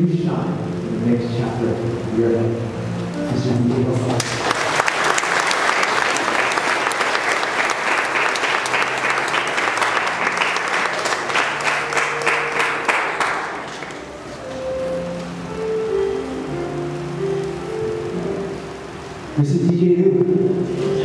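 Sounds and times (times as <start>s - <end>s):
audience applauding: 4.0s - 15.0s.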